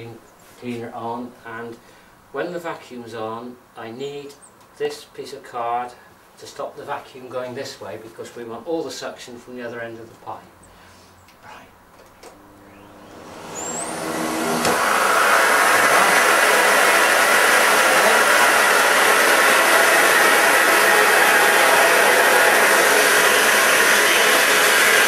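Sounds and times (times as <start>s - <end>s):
vacuum cleaner motor: 12.2s - 25.0s.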